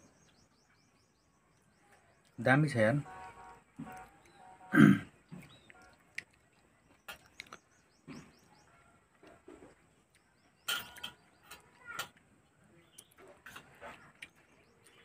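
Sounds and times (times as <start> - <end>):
person chewing and lip-smacking: 5.4 - 7.7
faint high bird chirps: 12.7 - 15.0.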